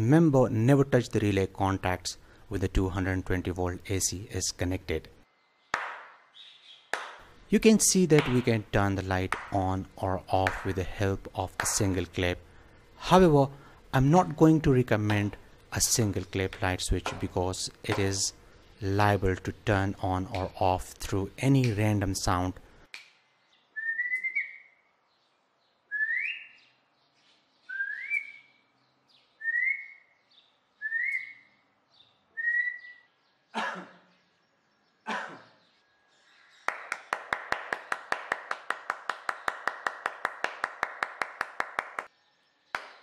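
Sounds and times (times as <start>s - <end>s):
sharp claps: 5.7s - 6.2s, 6.9s - 7.3s, 8.1s - 8.6s, 9.2s - 9.8s, 10.4s - 12.0s, 17.0s - 17.3s, 20.3s - 20.6s, 21.6s - 22.0s, 36.6s - 42.1s, 42.8s - 43.0s
rising whistles: 23.8s - 24.8s, 25.9s - 26.6s, 27.7s - 28.6s, 29.4s - 30.1s, 30.8s - 31.5s, 32.4s - 33.1s.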